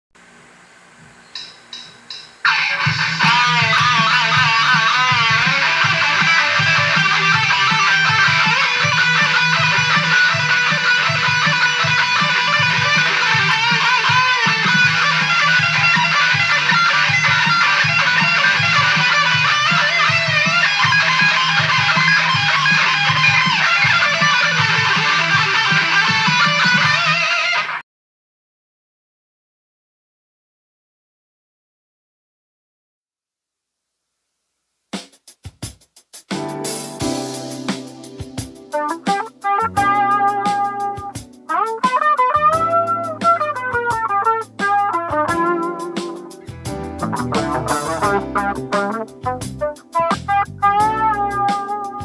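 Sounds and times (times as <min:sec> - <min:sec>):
electric guitar lead with bent notes: 0:02.4 - 0:27.8, 0:36.6 - 0:52.0
low bass beat: 0:02.8 - 0:26.6, 0:37.0 - 0:41.6, 0:42.3 - 0:52.0.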